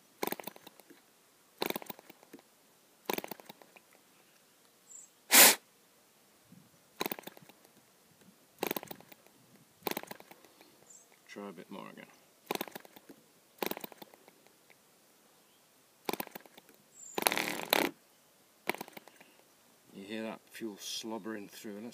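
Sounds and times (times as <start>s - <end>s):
model engine popping: 0.2s - 0.9s, 1.6s - 2.3s, 3.1s - 3.6s, 7.0s - 7.6s, 8.6s - 9.2s, 9.8s - 10.4s, 12.5s - 14.2s, 16.1s - 18.0s, 18.6s - 19.2s.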